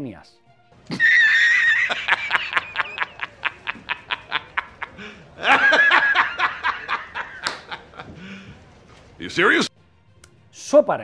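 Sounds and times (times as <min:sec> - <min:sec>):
man laughing hard: 0:00.9 - 0:08.5.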